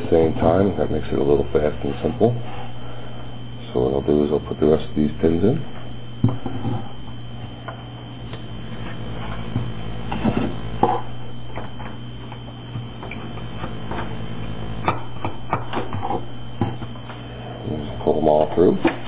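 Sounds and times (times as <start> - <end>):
low hum: 0.0 - 19.0.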